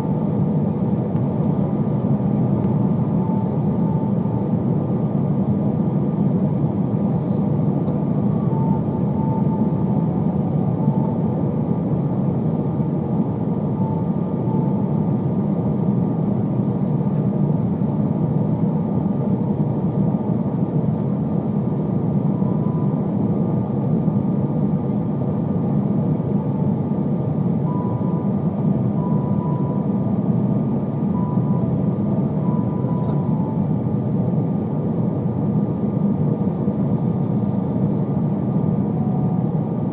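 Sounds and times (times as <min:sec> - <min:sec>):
aircraft engines: 0:00.0 - 0:39.9
faint high tones: 0:31.1 - 0:33.9.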